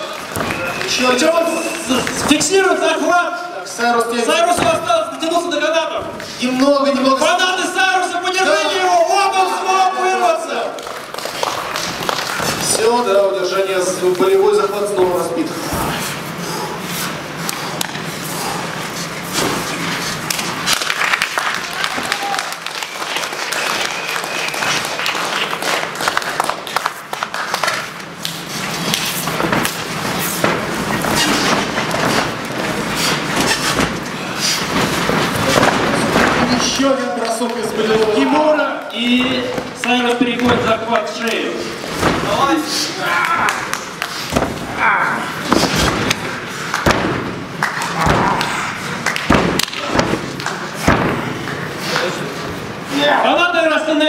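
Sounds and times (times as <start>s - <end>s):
wrestlers thudding on ring canvas: 4.4s - 5.0s, 28.8s - 36.8s, 41.8s - 42.6s, 44.2s - 44.8s, 45.4s - 51.5s
crowd clapping and shouting: 10.2s - 13.3s, 20.2s - 29.9s, 36.6s - 39.0s, 43.0s - 44.4s, 45.9s - 52.1s.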